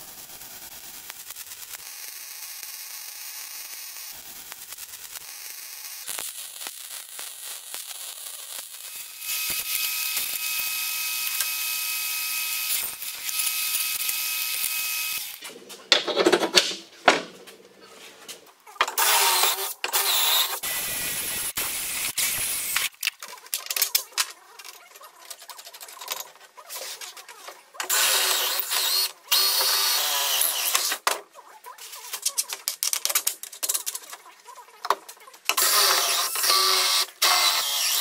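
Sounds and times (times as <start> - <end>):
welding arc crackling and hissing: 0.0 - 15.5, 19.0 - 23.0, 27.9 - 31.0, 35.5 - 38.0
cordless drill running: 9.0 - 15.4, 27.9 - 30.9, 35.6 - 38.0.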